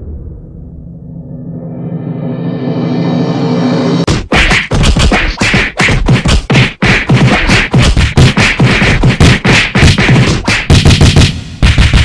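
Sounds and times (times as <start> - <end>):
cartoon whacks and thuds: 4.1 - 12.0.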